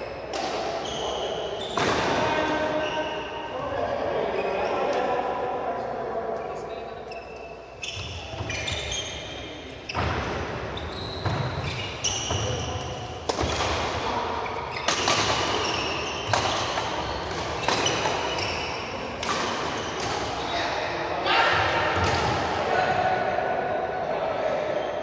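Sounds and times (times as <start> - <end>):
rackets hitting shuttlecock: 0.2 - 0.8, 1.6 - 2.6, 11.2 - 20.4, 21.6 - 22.5
shoes squeaking on court: 0.8 - 3.4, 7.0 - 13.7, 14.4 - 20.6.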